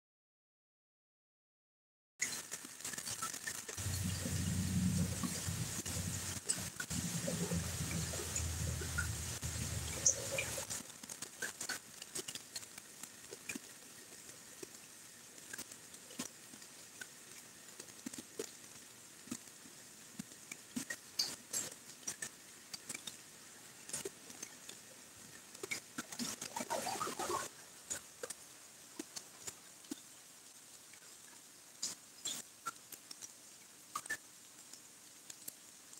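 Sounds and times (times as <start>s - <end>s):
light rain hiss: 2.2s - 35.9s
raindrops pattering: 2.2s - 35.9s
low rumble: 3.8s - 10.7s.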